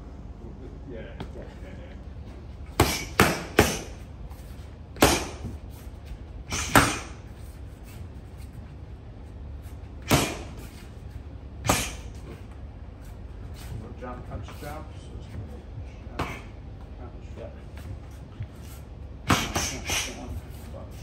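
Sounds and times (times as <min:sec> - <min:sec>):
punches smacking focus mitts: 0:02.8 - 0:04.0, 0:05.0 - 0:05.5.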